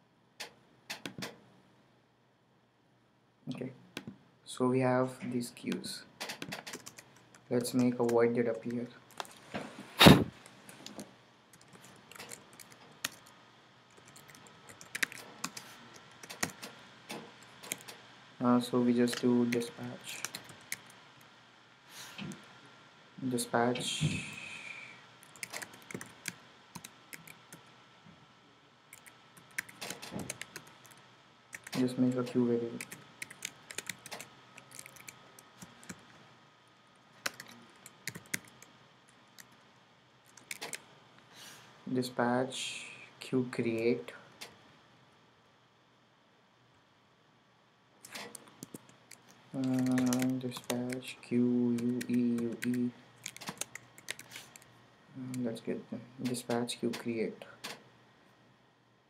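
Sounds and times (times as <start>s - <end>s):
computer keyboard typing: 6.2s - 8.8s, 11.5s - 13.3s, 13.9s - 16.7s, 17.5s - 18.0s, 19.0s - 21.0s, 25.2s - 27.6s, 28.9s - 36.0s, 37.2s - 38.7s, 40.3s - 40.8s, 48.0s - 51.1s, 51.7s - 54.7s
computer keyboard key clicks: 51.8s - 54.3s.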